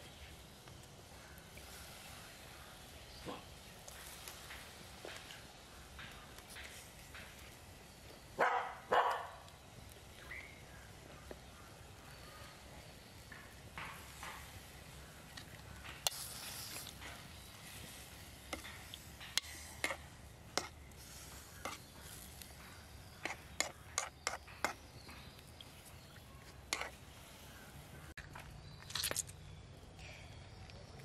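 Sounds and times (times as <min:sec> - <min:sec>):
metal spoon scraping steel pot: 0:23.2 - 0:24.8, 0:26.7 - 0:27.0.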